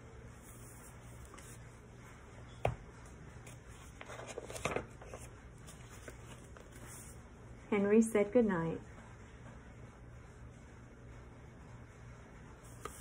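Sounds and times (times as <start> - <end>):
low room hum: 0.0 - 13.0
paper rustling: 3.0 - 7.2.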